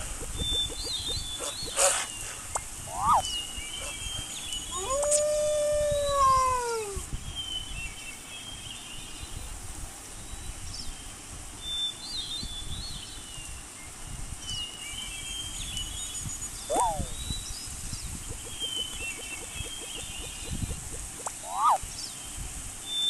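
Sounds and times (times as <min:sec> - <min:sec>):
animal long pitched call: 0:02.9 - 0:03.2, 0:21.4 - 0:21.8
faint high chirps: 0:16.2 - 0:17.5.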